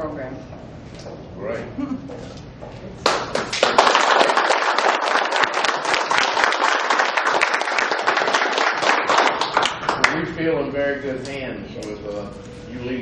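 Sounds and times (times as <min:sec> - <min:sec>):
people clapping: 0:03.0 - 0:10.3.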